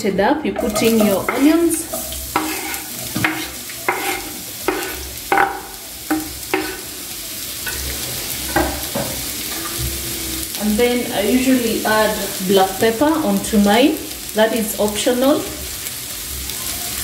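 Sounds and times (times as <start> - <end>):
onions sizzling in hot oil: 0.5 - 17.0
knife scraping cutting board: 1.9 - 5.0.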